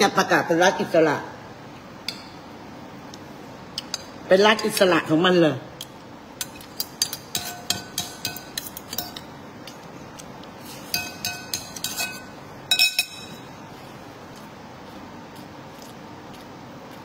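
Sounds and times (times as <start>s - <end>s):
spoon scraping ceramic plate: 10.7s - 13.4s.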